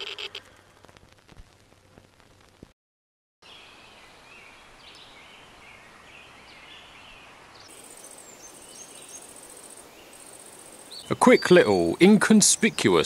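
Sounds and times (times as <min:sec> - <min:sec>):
small birds chirping: 0:03.4 - 0:13.0
insect chirring: 0:07.7 - 0:11.2.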